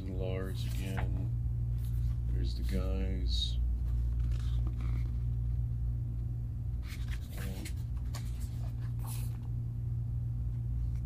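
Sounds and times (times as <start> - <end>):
steady low hum: 0.0 - 11.0
glossy pages rustling: 0.6 - 1.1, 3.9 - 5.3, 6.8 - 9.5.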